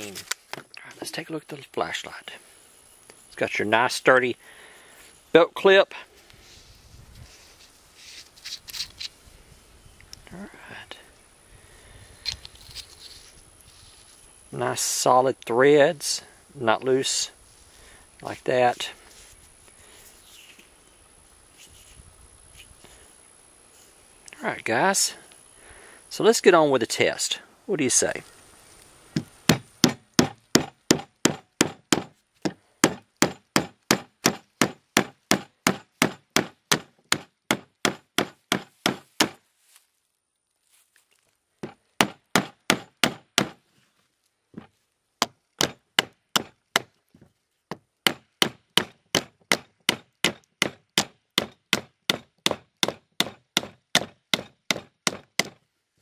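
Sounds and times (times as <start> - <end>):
hammer striking nails: 29.2 - 39.4, 41.6 - 43.6, 45.2 - 47.0, 47.7 - 55.6.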